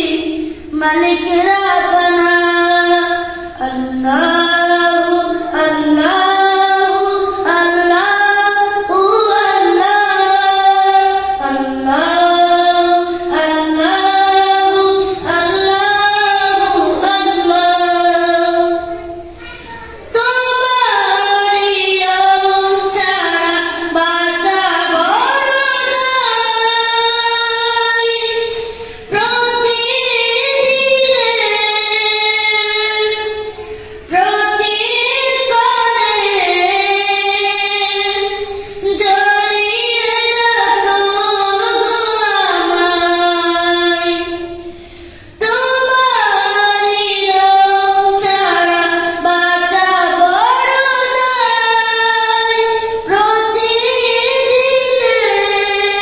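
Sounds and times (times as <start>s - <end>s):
boy singing: 0.0s - 56.0s
singer breathing: 0.4s - 0.7s, 33.6s - 34.1s, 38.5s - 38.8s, 44.6s - 45.4s.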